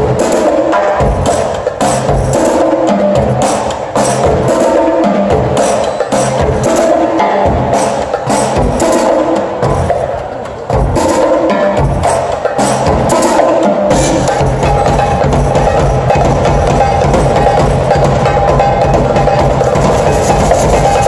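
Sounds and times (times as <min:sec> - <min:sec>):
percussion ensemble playing: 0:00.0 - 0:21.0
deep drums: 0:10.7 - 0:21.0.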